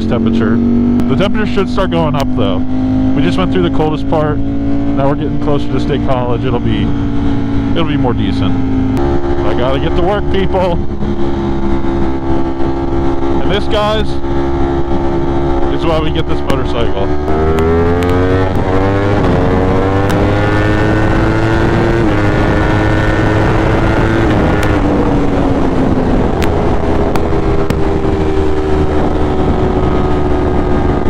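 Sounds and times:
motorcycle accelerating through gears: 0.0s - 31.0s
wind rushing: 6.6s - 31.0s.

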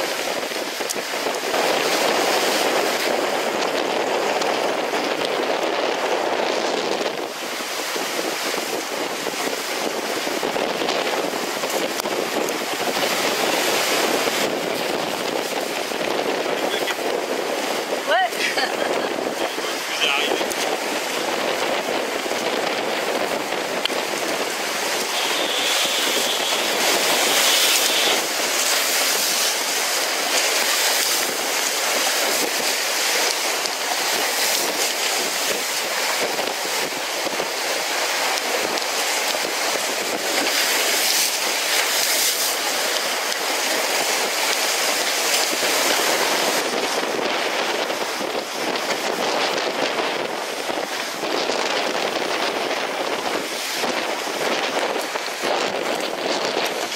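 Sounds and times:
water rushing along hulls: 0.0s - 56.9s
wind buffeting microphone: 0.0s - 56.9s.

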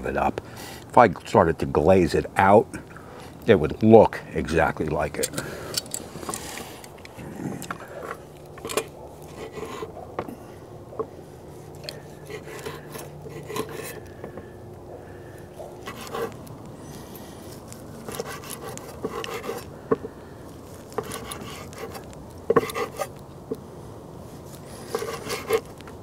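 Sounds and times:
steady low hum: 0.0s - 26.0s
knife sawing through meat: 9.2s - 9.9s, 11.8s - 14.2s, 15.8s - 16.4s, 17.4s - 19.7s, 20.8s - 23.1s, 24.6s - 25.8s.

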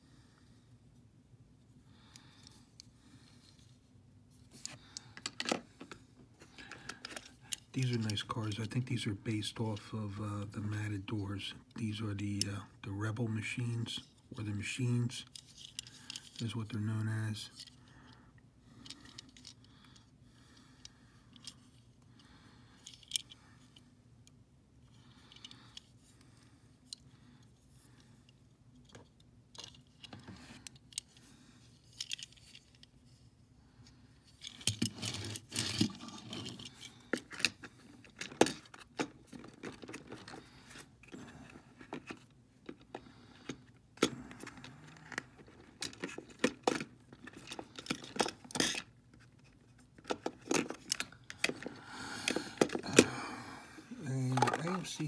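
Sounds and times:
toy car and plastic case clicks: 41.8s - 49.3s, 50.0s - 53.1s.

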